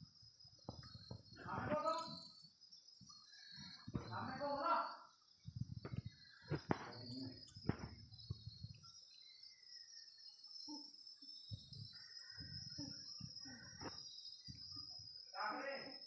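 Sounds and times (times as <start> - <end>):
steady high hiss: 4.1 - 16.0.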